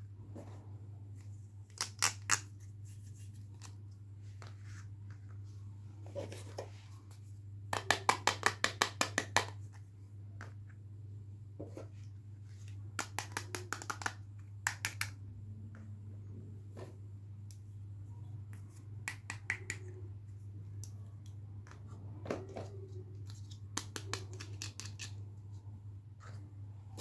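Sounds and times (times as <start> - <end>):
plastic pieces clicking on table: 13.0 - 15.2, 23.3 - 25.2.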